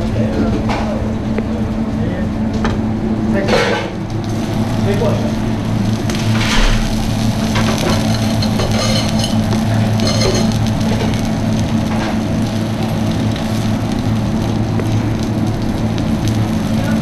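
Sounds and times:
onions sizzling on griddle: 0:03.4 - 0:17.0
low hum: 0:04.0 - 0:16.9
tongs clinking on steel: 0:07.6 - 0:10.5.

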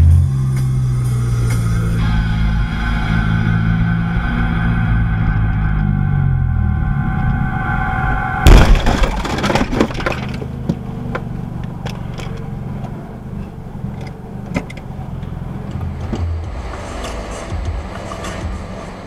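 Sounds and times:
road and engine rumble in car: 0:00.0 - 0:19.0
car collision crash: 0:08.3 - 0:10.5
debris clattering: 0:08.4 - 0:10.8.

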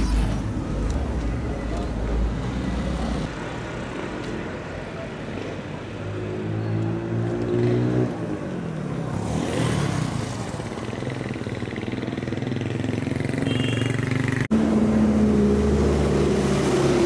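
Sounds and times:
vehicle engines passing by: 0:00.0 - 0:17.0.

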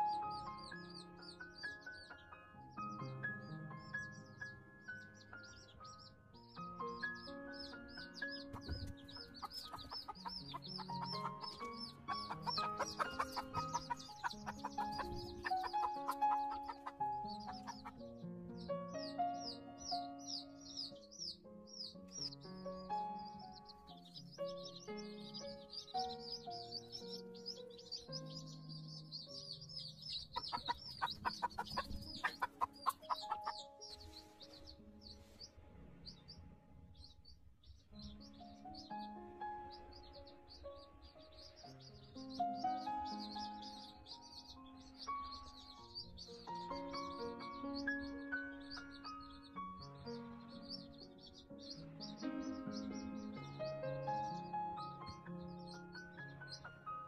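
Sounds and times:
baby chicks peeping: 0:00.0 - 0:57.0
background music with held notes: 0:00.0 - 0:57.0
hen clucking: 0:08.4 - 0:18.0, 0:30.0 - 0:34.7.

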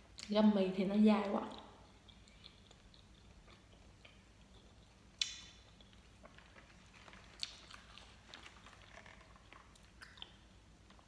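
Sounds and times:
chewing gummy candy: 0:01.4 - 0:11.0
sticky mouth clicks: 0:01.5 - 0:06.0.

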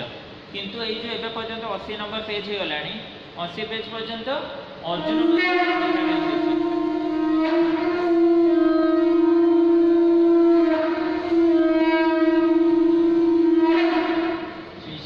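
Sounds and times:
conch shell blown: 0:05.0 - 0:14.8.

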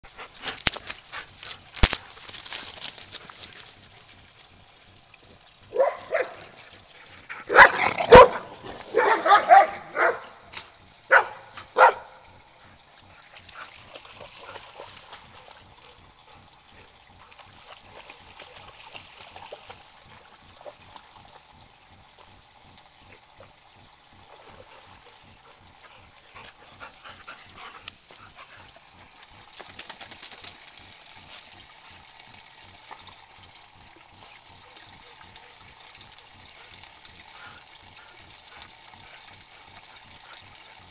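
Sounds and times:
water trickling and splashing: 0:00.0 - 0:40.9
dog barking: 0:05.7 - 0:06.4, 0:07.5 - 0:10.4, 0:11.1 - 0:12.3.

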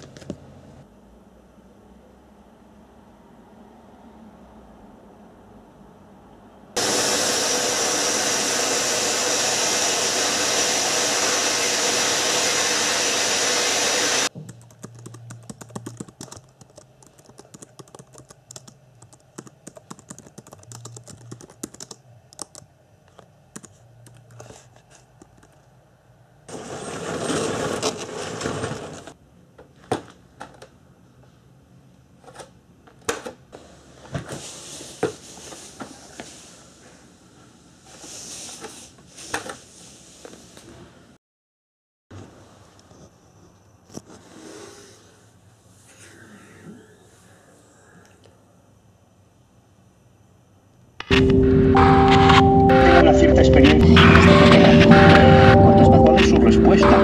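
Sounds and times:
computer keyboard typing: 0:14.4 - 0:22.7, 0:23.5 - 0:24.6.

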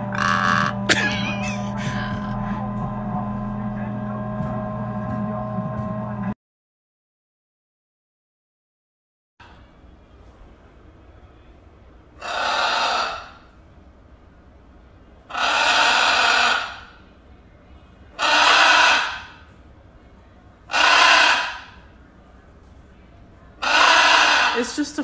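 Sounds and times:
macaw harsh calls: 0:00.0 - 0:02.3, 0:12.2 - 0:13.4, 0:15.3 - 0:16.9, 0:18.2 - 0:19.4, 0:20.7 - 0:21.8, 0:23.6 - 0:24.8.

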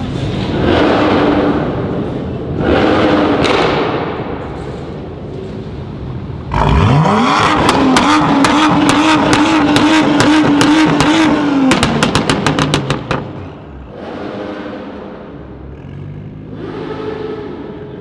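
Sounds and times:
car engine revving: 0:00.2 - 0:04.4, 0:06.2 - 0:18.0
exhaust cracks and pops: 0:07.6 - 0:13.5.

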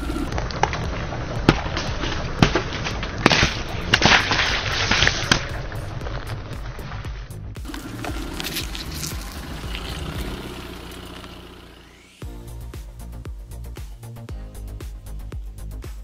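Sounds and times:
lemons cracking and popping: 0:00.0 - 0:06.8, 0:07.6 - 0:11.3
steady low rumble: 0:00.0 - 0:15.6.

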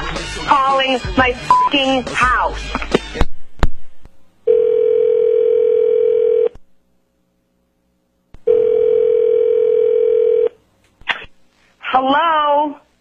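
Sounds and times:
telephone ringback tone: 0:04.5 - 0:06.5, 0:08.5 - 0:10.6.

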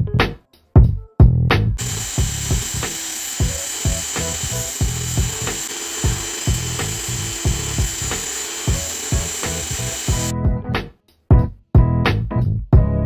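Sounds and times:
background music with steady beat: 0:00.0 - 0:13.0
cordless drill whining: 0:01.8 - 0:10.3.

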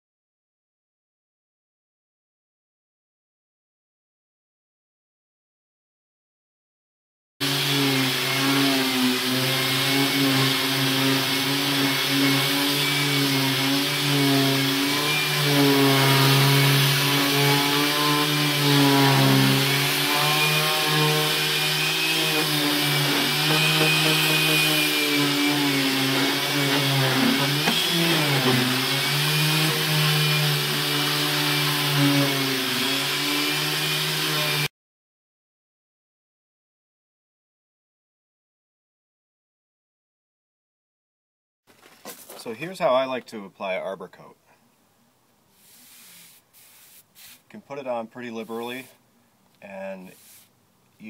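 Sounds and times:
electric sander sanding wood: 0:07.4 - 0:34.7, 0:45.6 - 0:49.0, 0:50.1 - 0:50.5.

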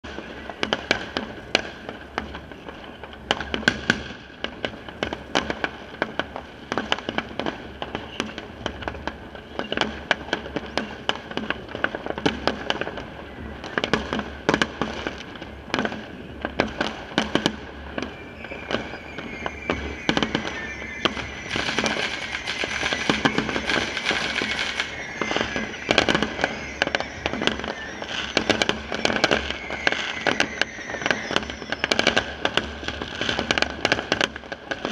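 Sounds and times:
fireworks bangs and crackling: 0:00.0 - 0:34.9
high whistling tone: 0:16.2 - 0:34.0.

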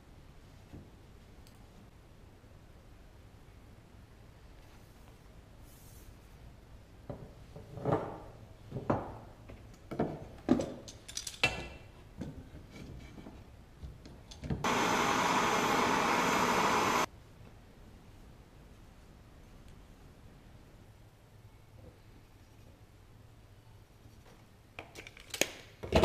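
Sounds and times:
loud steady hiss: 0:14.6 - 0:17.1.

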